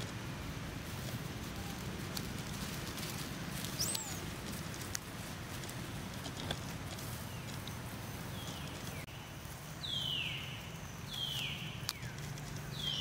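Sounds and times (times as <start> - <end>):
monkey squealing calls: 3.8 - 4.3.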